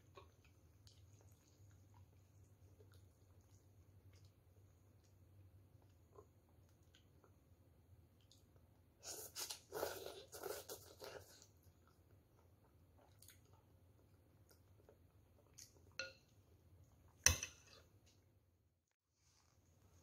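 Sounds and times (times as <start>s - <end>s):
faint chewing: 0.0s - 7.4s, 8.1s - 16.0s
person slurping noodles: 9.0s - 11.5s.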